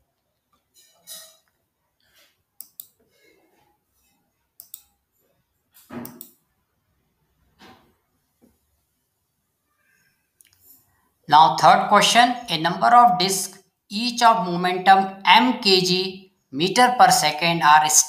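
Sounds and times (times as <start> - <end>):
computer mouse clicks: 2.6 - 3.0, 4.6 - 5.0, 5.8 - 6.4.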